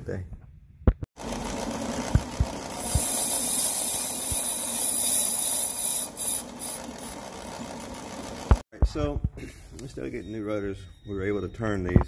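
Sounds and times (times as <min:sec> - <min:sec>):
machine hum: 0:01.2 - 0:08.6
high hiss of metal cutting: 0:02.8 - 0:06.8.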